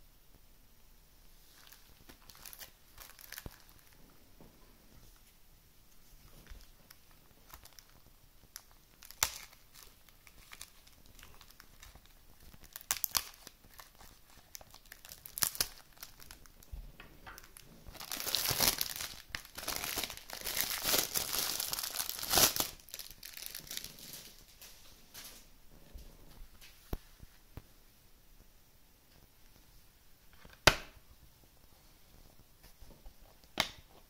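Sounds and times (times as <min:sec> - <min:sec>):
plastic wrapping crinkling: 0:01.4 - 0:04.1, 0:06.1 - 0:25.5.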